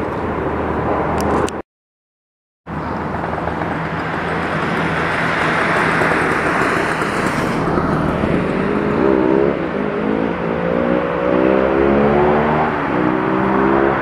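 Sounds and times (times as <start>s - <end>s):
low engine hum: 2.7s - 13.0s
steady rushing noise: 2.7s - 13.3s.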